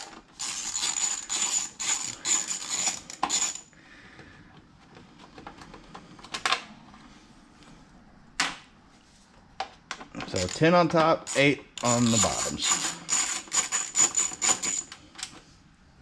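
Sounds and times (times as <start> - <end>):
socket ratchet clicking: 10.2 - 15.0.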